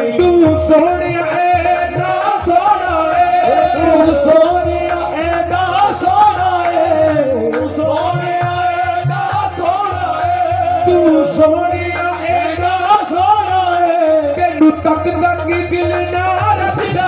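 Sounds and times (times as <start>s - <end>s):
harmonium melody: 0.0s - 17.0s
men singing long ornamented notes: 0.0s - 17.0s
pulsing low beat: 1.5s - 8.7s.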